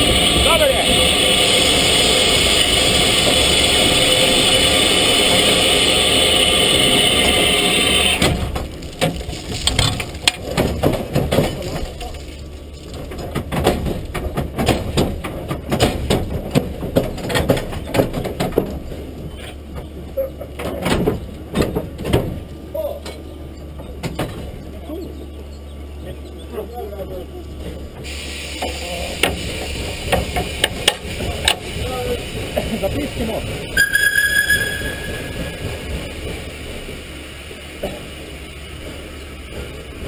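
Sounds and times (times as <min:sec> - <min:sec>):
steam locomotive venting steam: 0:00.0 - 0:08.6, 0:28.0 - 0:33.8
low hum: 0:33.8 - 0:37.1.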